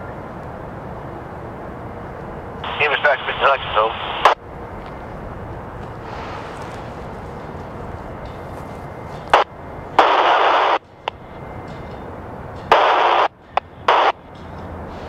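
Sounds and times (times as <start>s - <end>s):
radio static bursts: 2.7s - 4.4s, 9.3s - 10.8s, 12.7s - 14.2s.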